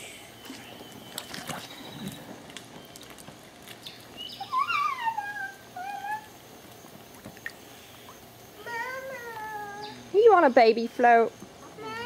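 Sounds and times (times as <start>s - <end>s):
high-pitched whining cries: 4.4s - 6.4s.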